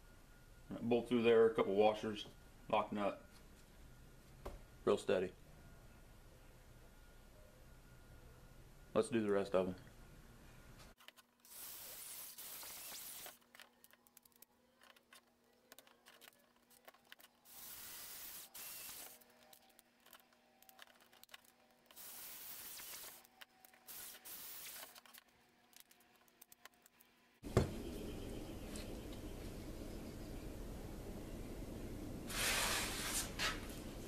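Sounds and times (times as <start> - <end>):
screws and washers clicking: 11.0 - 27.1
steady hiss: 11.5 - 13.4, 17.5 - 19.2, 21.9 - 23.2, 23.8 - 24.9, 32.2 - 34.0.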